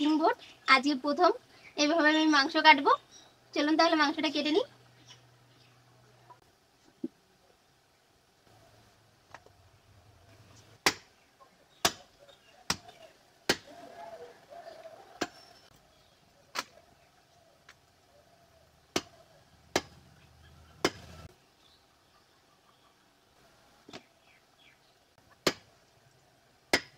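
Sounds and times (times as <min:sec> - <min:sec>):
cleaver chopping on wooden block: 0:10.8 - 0:11.1, 0:13.5 - 0:13.7, 0:18.9 - 0:20.0, 0:25.4 - 0:25.7.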